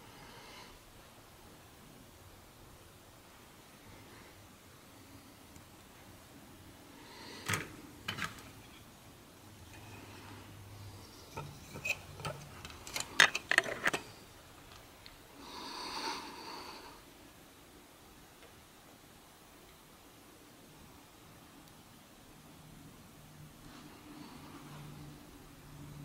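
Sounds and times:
plastic bricks clicking: 11.4 - 14.1.

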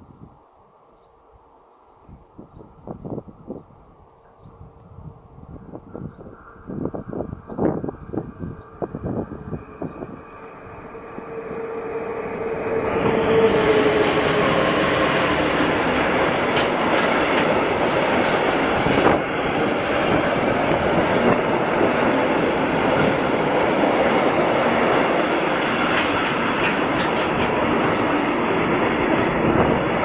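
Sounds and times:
electric locomotive hum: 2.7 - 30.0
wagon wheels rumbling on rails: 13.0 - 30.0
wheels clicking over rail joints: 14.4 - 30.0.

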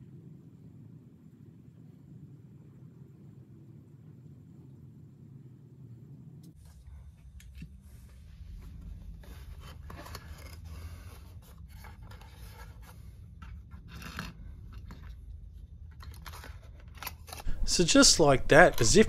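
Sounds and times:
low steady hum: 0.0 - 19.0
light scraping and rubbing: 7.8 - 15.2.

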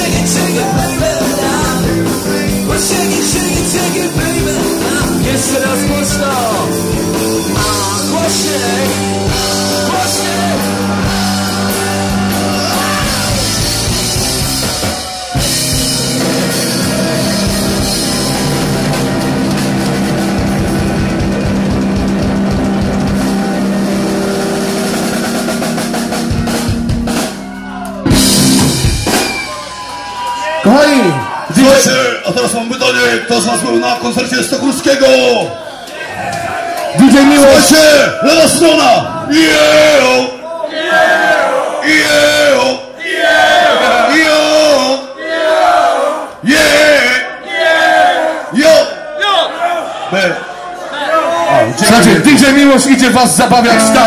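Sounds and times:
person singing: 0.0 - 13.9, 53.6 - 54.0
electric guitars: 0.0 - 30.4
drum kit: 0.0 - 31.3, 52.0 - 54.0
live rock band playing: 0.0 - 35.1, 51.8 - 54.0.

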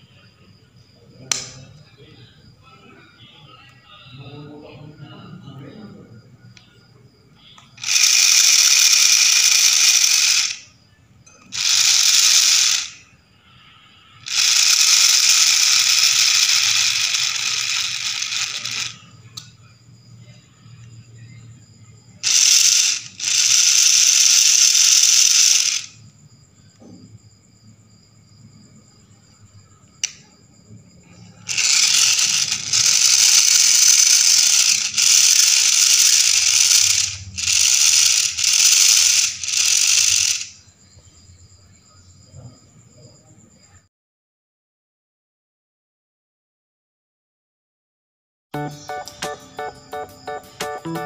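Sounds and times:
electric motor ratcheting gearbox: 7.8 - 10.7, 11.4 - 13.0, 14.2 - 19.0, 22.2 - 26.0, 31.5 - 40.6.

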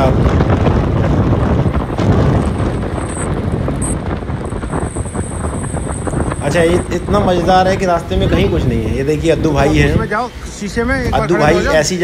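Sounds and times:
wind rushing over microphone: 0.0 - 12.0.

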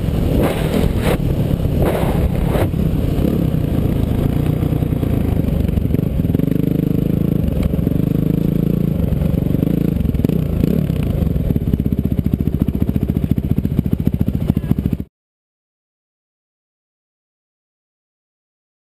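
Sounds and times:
off-road race engine running: 0.0 - 15.1.

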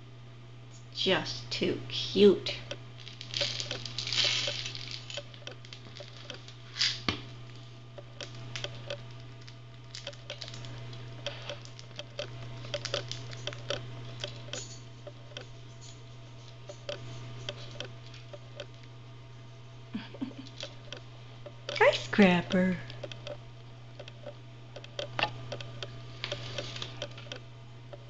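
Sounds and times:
hamster cracking and chewing seeds: 8.2 - 14.8.

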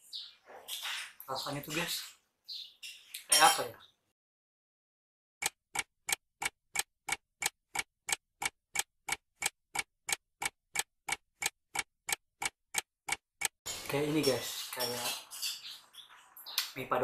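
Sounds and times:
clock ticking: 5.4 - 13.6.

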